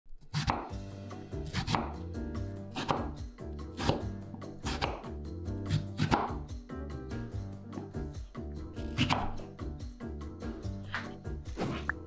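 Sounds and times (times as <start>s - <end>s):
cutter chopping potato on board: 0.3s - 0.8s, 1.4s - 2.0s, 2.7s - 6.5s, 8.8s - 9.4s.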